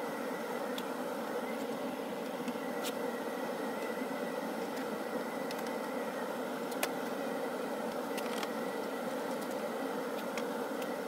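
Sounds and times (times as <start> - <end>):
mechanical hum: 0.0 - 11.0
thin whine: 0.0 - 11.0.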